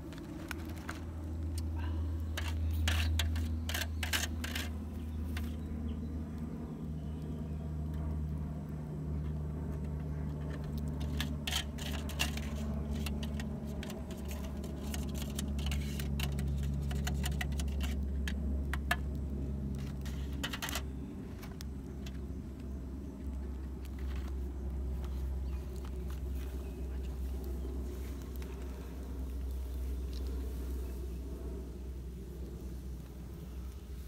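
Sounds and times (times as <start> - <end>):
steady low hum: 0.0 - 34.0
metal tongs clinking and scraping: 11.0 - 18.0.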